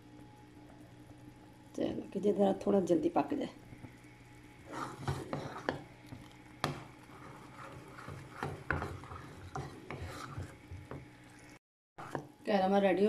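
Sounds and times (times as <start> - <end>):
wooden spoon scraping saucepan: 4.6 - 5.9, 7.0 - 11.0.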